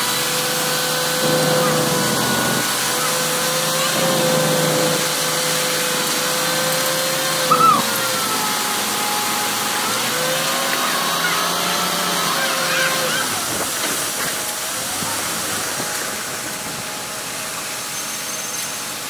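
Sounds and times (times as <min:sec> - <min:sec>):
truck engine and machinery running: 0:00.0 - 0:19.0
wet concrete pouring down chute: 0:00.0 - 0:19.0
high squeak: 0:07.5 - 0:08.2.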